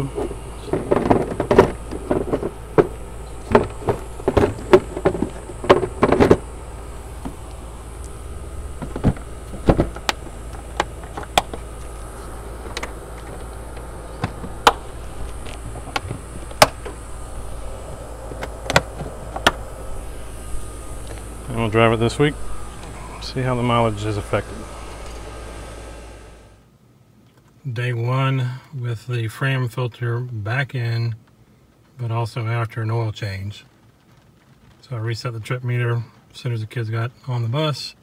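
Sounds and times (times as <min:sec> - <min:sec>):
plastic lid knocking and rattling: 0:00.7 - 0:06.4, 0:08.8 - 0:11.6
spring clips snapping shut: 0:18.4 - 0:19.6.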